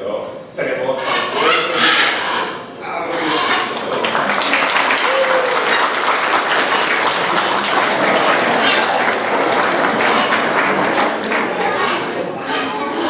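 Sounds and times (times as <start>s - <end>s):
audience applauding: 3.6s - 12.3s.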